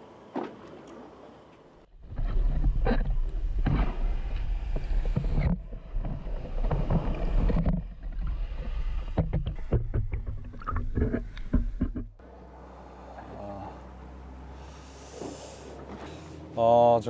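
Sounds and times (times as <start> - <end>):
muffled underwater rumble: 1.9 - 12.2
sharp clicks and knocks: 2.1 - 12.2.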